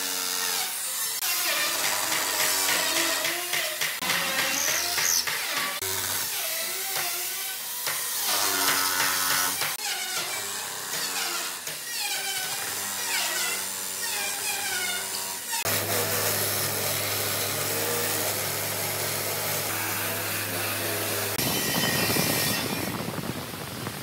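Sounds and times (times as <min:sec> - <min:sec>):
wire wheel grinder scouring wood: 0:09.8 - 0:22.8.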